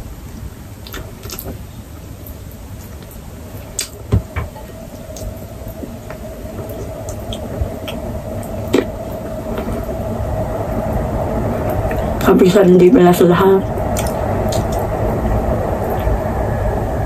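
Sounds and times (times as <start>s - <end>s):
low background hum: 0.0s - 17.0s
chewing: 0.8s - 1.5s.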